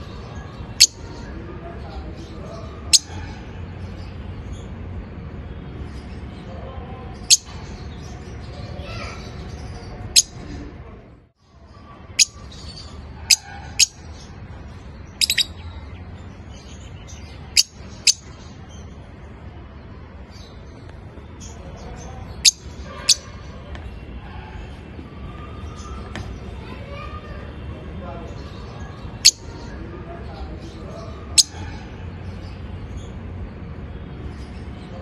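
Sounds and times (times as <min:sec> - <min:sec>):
lovebirds chirping: 0:00.0 - 0:35.0.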